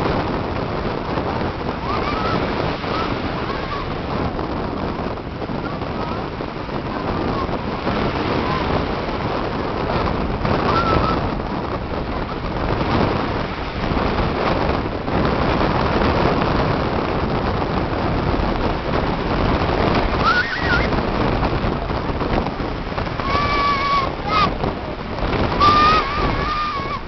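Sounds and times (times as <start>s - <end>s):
surf on a beach: 0.0s - 27.0s
wind buffeting microphone: 0.0s - 27.0s
high-pitched cries: 20.2s - 20.9s, 23.2s - 24.6s, 25.6s - 27.0s.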